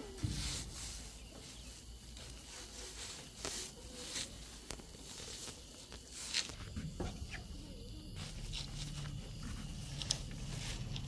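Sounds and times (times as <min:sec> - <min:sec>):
plastic netting rustling: 0:00.0 - 0:06.7.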